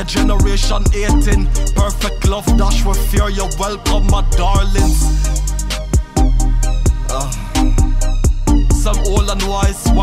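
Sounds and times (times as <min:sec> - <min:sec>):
hip-hop beat with heavy bass: 0:00.0 - 0:10.0
person rapping: 0:00.0 - 0:10.0.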